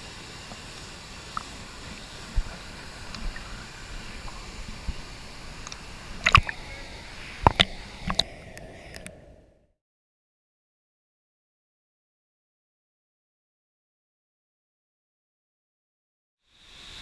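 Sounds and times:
waterfall rushing: 0.0s - 9.1s
water lapping at camera: 0.2s - 9.4s
water splashing against camera: 0.5s - 9.3s.

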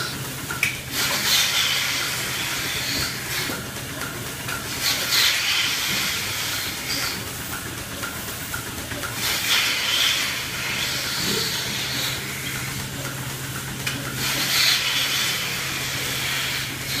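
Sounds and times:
milking equipment hum: 0.0s - 17.0s.

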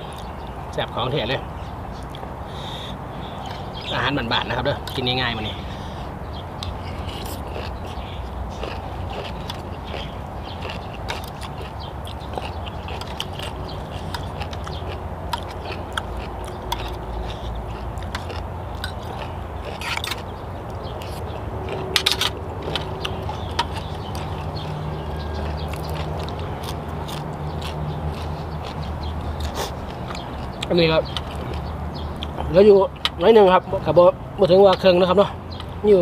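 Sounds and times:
chewing and biting food: 6.4s - 33.2s.

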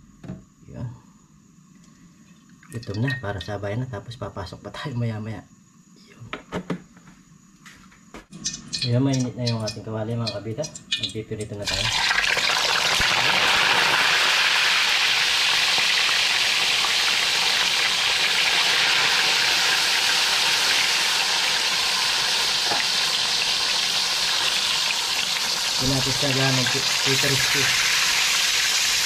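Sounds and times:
fish sizzling in hot oil: 11.7s - 29.0s.

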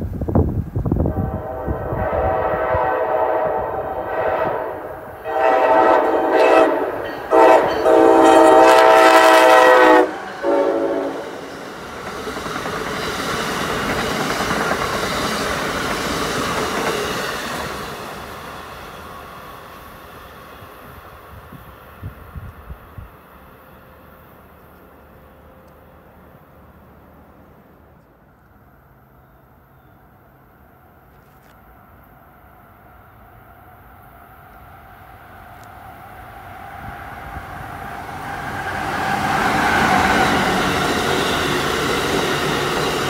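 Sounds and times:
train cars rushing past on rails: 0.0s - 31.0s, 32.3s - 43.0s
train horn blasts: 1.0s - 11.5s.

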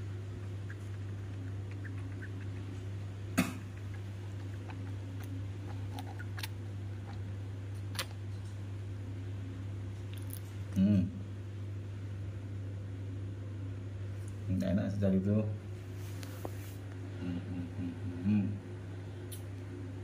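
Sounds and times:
steady low hum: 0.0s - 20.0s
wet sucking and smacking: 0.3s - 3.0s, 3.6s - 8.2s.

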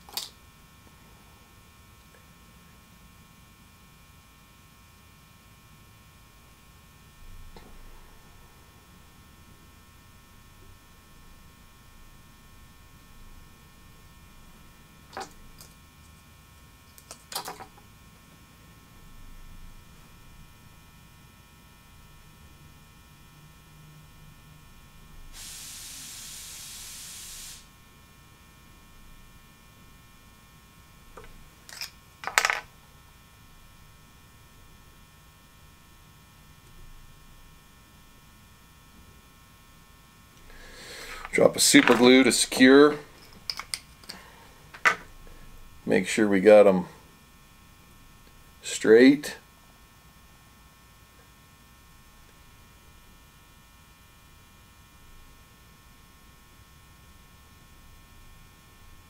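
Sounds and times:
faint electrical hum: 0.0s - 59.0s
steady hiss: 25.2s - 27.8s, 40.4s - 47.0s.

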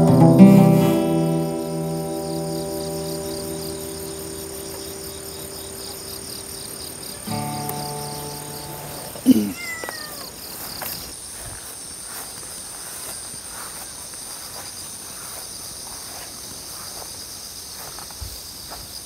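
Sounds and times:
strummed acoustic guitar chord: 0.0s - 9.2s
insects chirping: 0.0s - 19.0s.

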